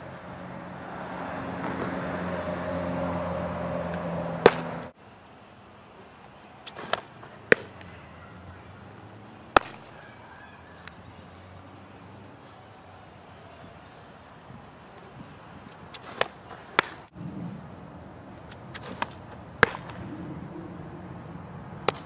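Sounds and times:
softball smacking into catcher's mitt: 0:04.4 - 0:04.8, 0:06.6 - 0:07.9, 0:09.5 - 0:09.9, 0:15.9 - 0:17.0, 0:18.5 - 0:20.0.

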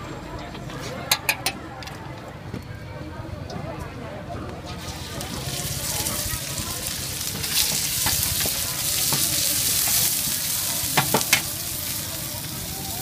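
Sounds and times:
spatula clanking against wok: 0:01.0 - 0:01.6, 0:10.9 - 0:11.6
meat sizzling in a wok: 0:04.8 - 0:13.0.

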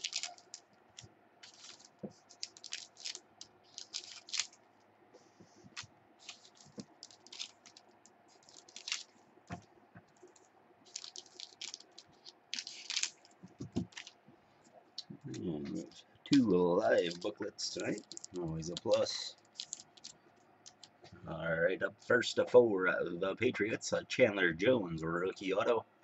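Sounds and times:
wrappers crinkling: 0:00.0 - 0:04.8, 0:05.7 - 0:14.2, 0:15.7 - 0:21.1.

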